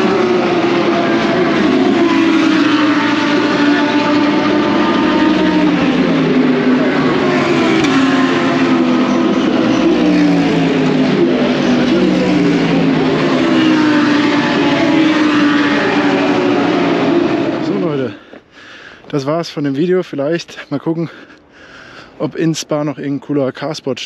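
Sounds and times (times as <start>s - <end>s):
race car engines revving: 0.0s - 18.4s.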